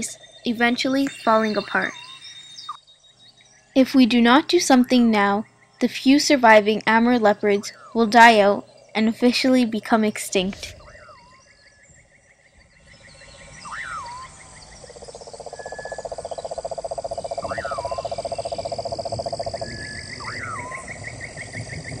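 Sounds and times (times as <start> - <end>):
rapid chirping: 0.0 - 2.9, 12.8 - 21.9
frog pulsing trill: 0.0 - 3.0, 12.7 - 22.0
high insect tone: 0.0 - 6.2, 6.8 - 22.0
swooping call: 13.6 - 14.5, 17.4 - 18.7.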